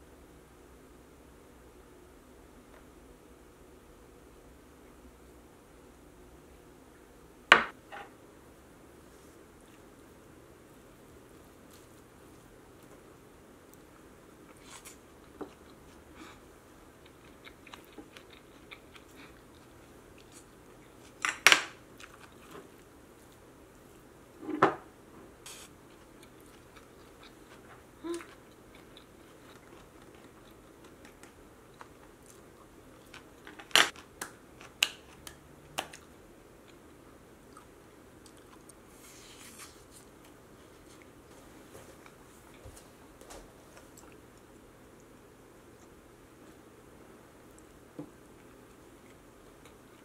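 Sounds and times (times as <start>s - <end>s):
quiet chewing: 13.7s - 21.2s, 22.0s - 23.9s, 25.5s - 34.0s, 35.9s - 42.8s, 43.7s - 46.6s, 47.4s - 50.0s.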